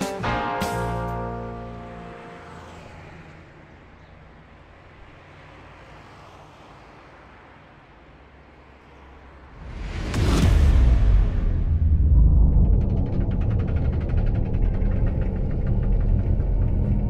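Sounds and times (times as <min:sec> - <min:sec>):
distant road traffic rumble: 0:00.8 - 0:10.2.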